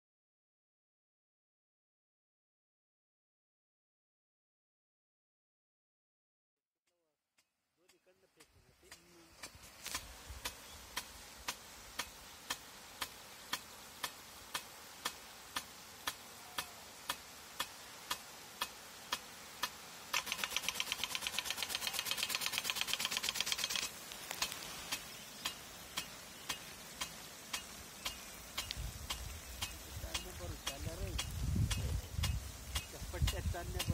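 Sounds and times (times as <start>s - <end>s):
sprinkler arm clicking: 7.4s - 33.9s
fast sprinkler rattle: 7.9s - 33.9s
hiss of water spray: 8.0s - 33.9s.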